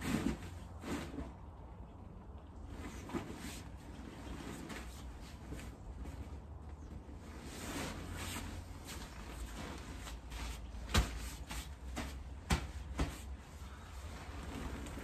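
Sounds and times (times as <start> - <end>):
fabric rustling and crinkling: 2.7 - 15.0
sharp fabric slaps: 10.8 - 13.5.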